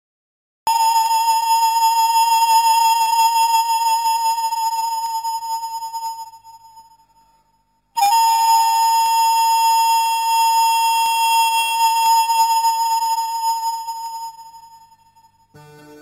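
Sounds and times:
long wavering woodwind note: 0:00.7 - 0:06.6, 0:08.0 - 0:16.0.

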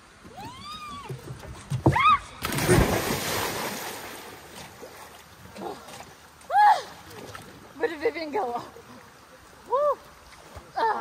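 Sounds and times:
water washing and settling: 0:00.0 - 0:07.8
people splashing into lake: 0:01.9 - 0:06.2.

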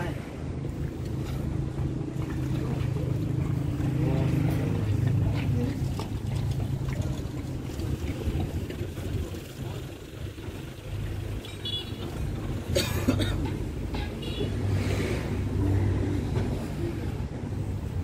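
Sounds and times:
water spattering from hose: 0:01.0 - 0:12.7.

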